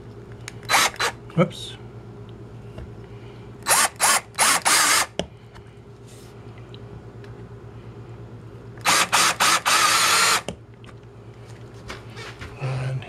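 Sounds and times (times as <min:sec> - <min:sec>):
cordless drill boring into wood: 0:00.7 - 0:01.1, 0:03.6 - 0:05.1, 0:08.8 - 0:10.5.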